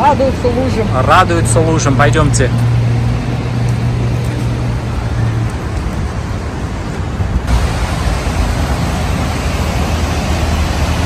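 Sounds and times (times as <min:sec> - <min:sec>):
passing traffic: 0:00.0 - 0:11.0
vehicle engine hum: 0:00.0 - 0:11.0
rain: 0:02.5 - 0:11.0.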